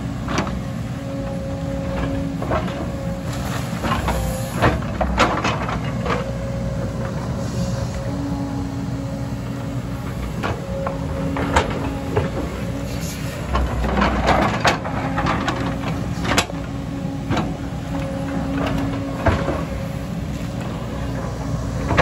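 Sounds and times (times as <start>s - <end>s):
excavator diesel engine running: 0.0s - 22.0s.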